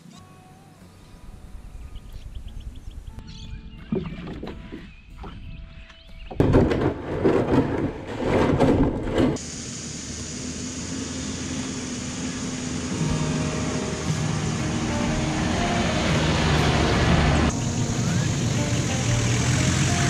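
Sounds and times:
kayak dragged over dirt: 3.8s - 9.5s
diesel engine driving: 9.2s - 20.0s.

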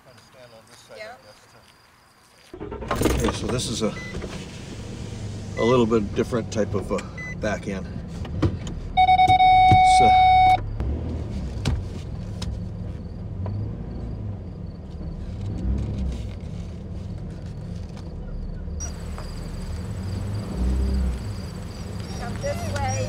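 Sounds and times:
truck rolling on gravel road: 2.3s - 8.2s, 14.6s - 23.0s
loud electronic beep: 9.0s - 10.7s.

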